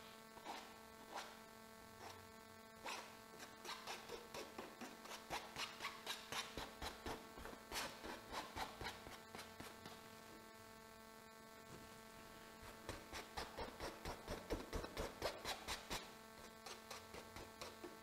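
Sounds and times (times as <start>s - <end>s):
faint steady hum: 0.0s - 18.0s
palette knife scraping canvas: 0.4s - 1.4s, 2.8s - 10.0s, 12.6s - 18.0s.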